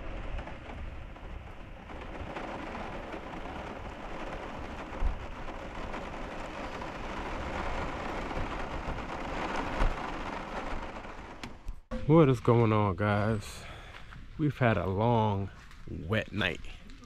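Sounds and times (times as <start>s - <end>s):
heavy rain on window: 0.0s - 11.9s.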